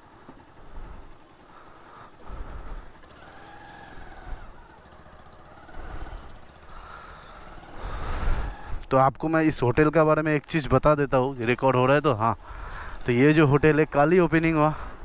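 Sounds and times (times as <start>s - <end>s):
vehicle engines passing: 0.0s - 8.9s.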